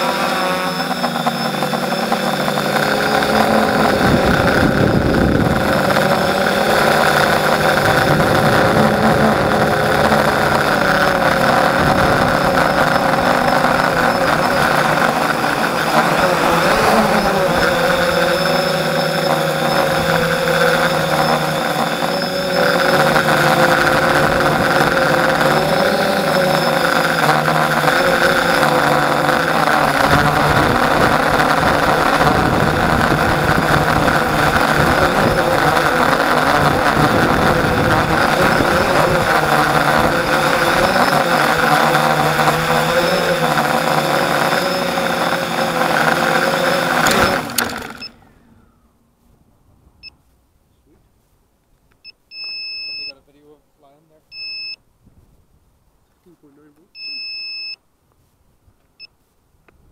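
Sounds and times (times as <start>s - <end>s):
quadcopter motors whining: 0.0s - 49.0s, 52.0s - 53.2s, 56.8s - 57.8s.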